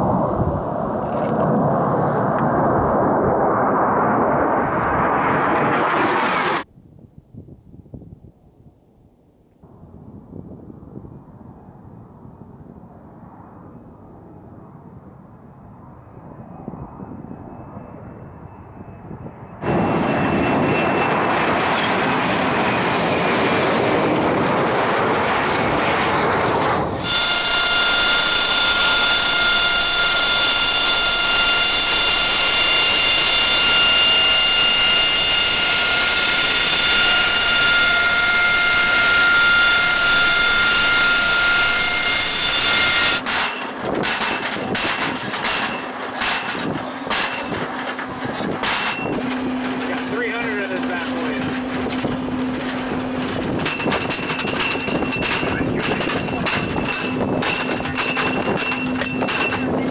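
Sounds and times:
high turbine whine: 0.0 - 6.7, 9.6 - 59.9
jet roar: 0.0 - 6.7, 9.6 - 59.9.

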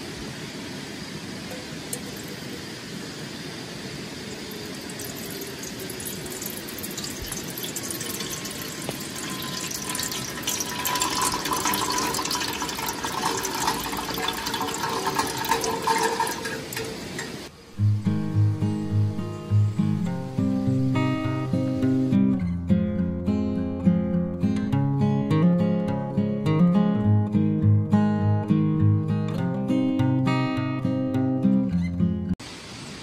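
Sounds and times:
water pouring into kettle: 4.4 - 17.5.

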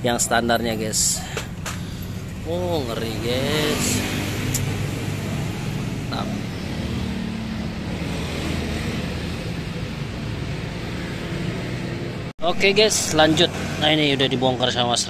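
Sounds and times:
workshop background rumble: 0.0 - 15.0
light clicks of engine parts: 1.2 - 2.4.

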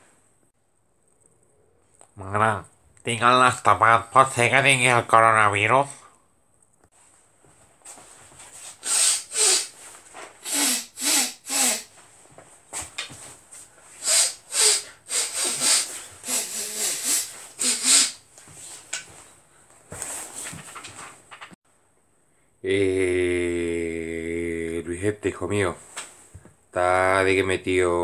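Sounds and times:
man making breathy hisses: 8.6 - 12.0, 13.8 - 18.8.

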